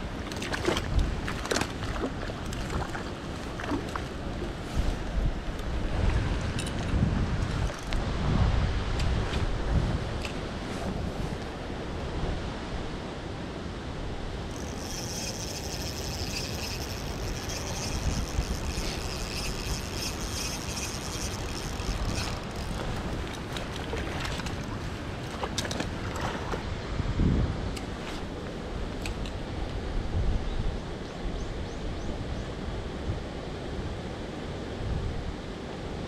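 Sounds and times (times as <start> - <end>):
rushing water: 0.0 - 12.4, 14.4 - 29.7
wind: 0.0 - 36.0
high steady whir: 14.5 - 23.4.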